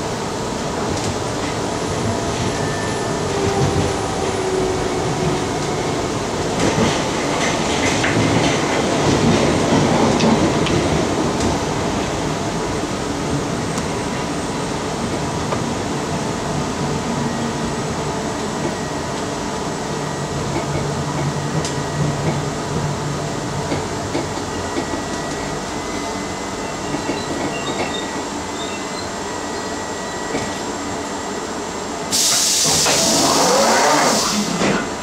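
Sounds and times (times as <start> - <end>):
train rumbling on track: 0.0 - 35.0
loud hiss of air: 32.1 - 34.8.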